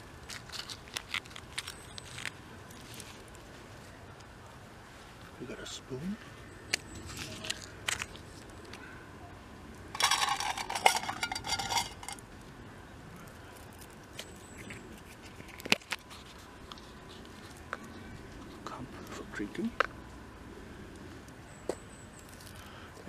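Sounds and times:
metal cook kit clinking: 0:10.0 - 0:12.2.

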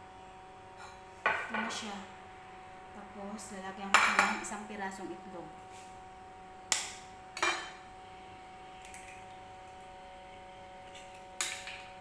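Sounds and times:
kitchenware clink: 0:07.4 - 0:07.8.

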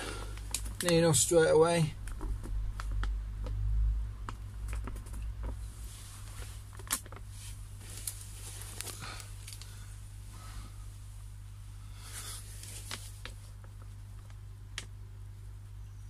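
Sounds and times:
plastic liner crinkling: 0:00.0 - 0:01.4, 0:04.2 - 0:09.8, 0:12.2 - 0:14.9.

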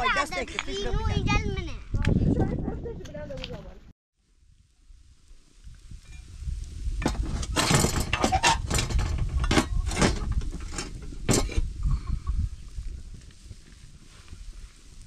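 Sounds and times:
hard knocks and clatters: 0:07.0 - 0:11.6.

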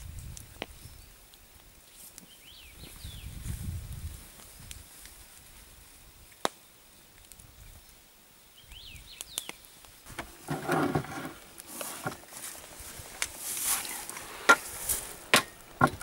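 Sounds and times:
bird chirps: 0:08.6 - 0:09.7.

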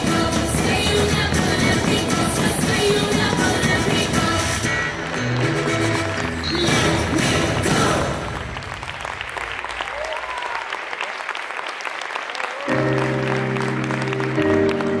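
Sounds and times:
audience applauding: 0:04.8 - 0:15.0.

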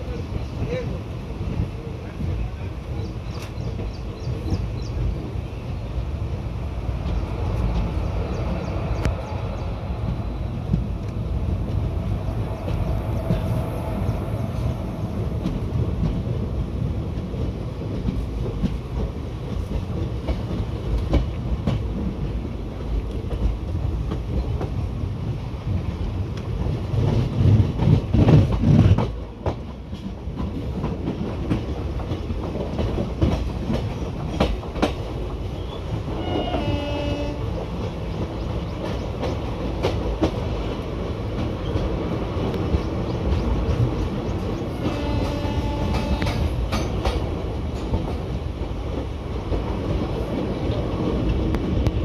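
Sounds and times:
train wheels rumbling on rail: 0:00.0 - 0:52.0
locomotive horn: 0:36.1 - 0:37.5, 0:44.7 - 0:46.6
clicks at rail joints: 0:38.8 - 0:48.2.

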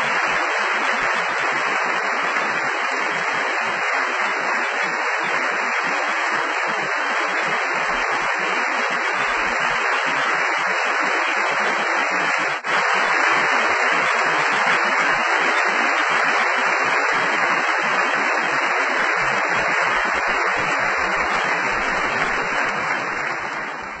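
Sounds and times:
audience applauding: 0:00.0 - 0:24.0.

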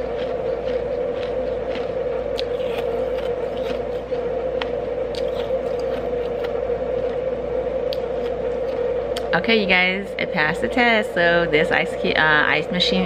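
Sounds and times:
ice being chewed: 0:00.0 - 0:07.3
steady hum: 0:00.0 - 0:13.0.

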